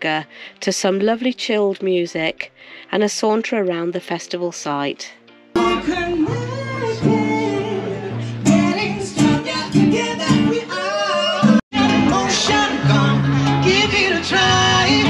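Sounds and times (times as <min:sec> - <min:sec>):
acoustic guitar: 0:05.6 - 0:15.0
person singing: 0:05.6 - 0:15.0.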